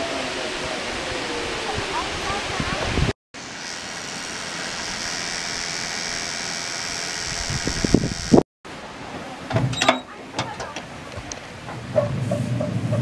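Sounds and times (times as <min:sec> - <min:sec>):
locomotive knocks and clanks on track: 0:09.5 - 0:13.0.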